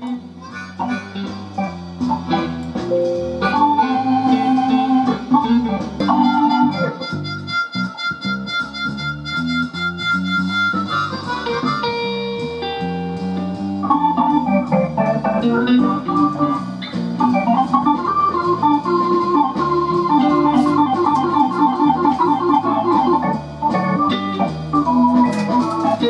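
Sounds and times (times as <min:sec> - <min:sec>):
distorted music through loudspeaker: 0:00.1 - 0:13.3, 0:13.9 - 0:26.0.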